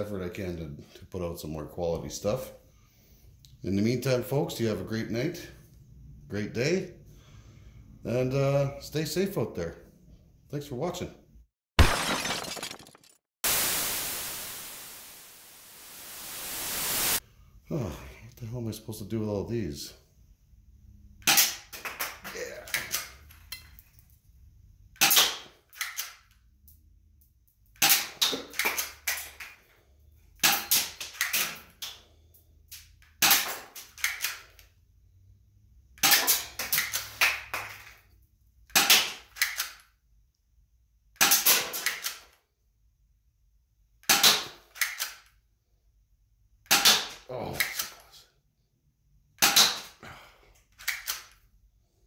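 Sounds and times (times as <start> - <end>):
plastic toy pistol clacks: 33.2 - 34.7, 38.7 - 39.9, 41.2 - 42.4, 44.0 - 45.3, 50.8 - 51.4.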